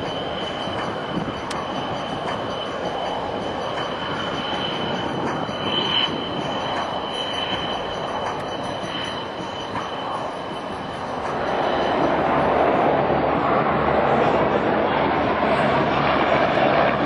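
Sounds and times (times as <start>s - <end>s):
jet engine roar with high whine: 0.0s - 17.0s.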